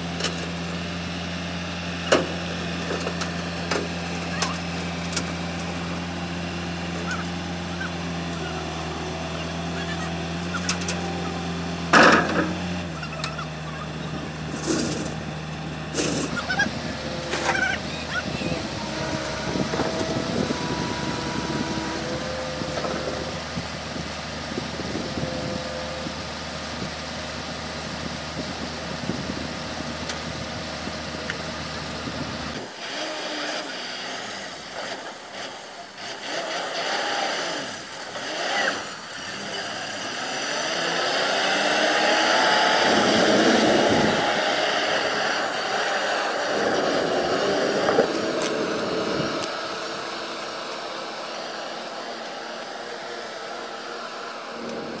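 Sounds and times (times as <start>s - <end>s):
diesel truck engine revving: 0.0s - 55.0s
voices: 2.7s - 27.2s, 37.7s - 55.0s.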